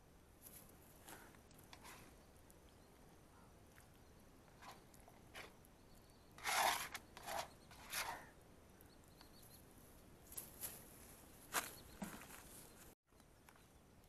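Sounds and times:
plastic scraper scraping metal pan: 0:06.4 - 0:08.2.

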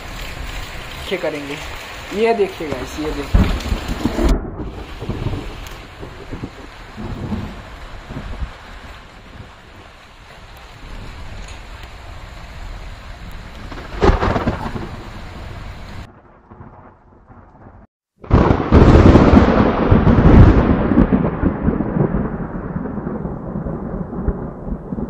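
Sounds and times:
rain hiss: 0:00.0 - 0:16.1
loud rolling thunderclap: 0:02.0 - 0:10.0, 0:10.7 - 0:25.0
thunder crack: 0:02.2 - 0:09.9, 0:10.8 - 0:25.0.

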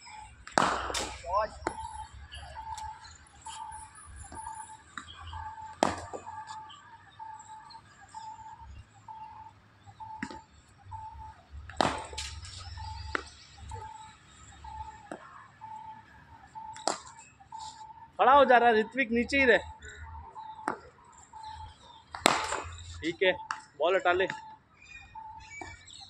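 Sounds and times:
bat striking ball: 0:00.4 - 0:01.8, 0:05.8 - 0:06.3, 0:11.7 - 0:12.4, 0:22.1 - 0:22.8.

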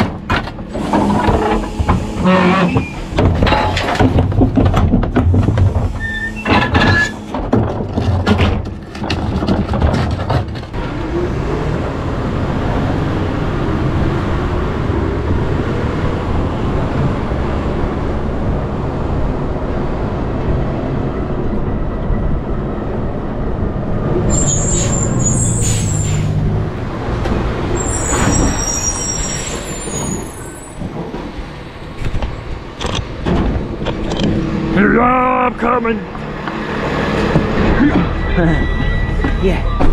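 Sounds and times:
brakes squealing: 0:00.0 - 0:04.2, 0:05.4 - 0:07.5, 0:24.2 - 0:39.9
garbage truck engine rumble: 0:00.0 - 0:39.9.

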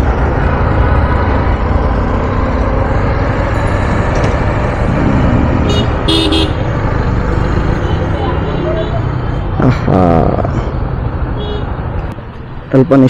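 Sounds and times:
motorcycle engine rumble: 0:00.0 - 0:10.5
vehicle horn honking: 0:05.6 - 0:06.6.

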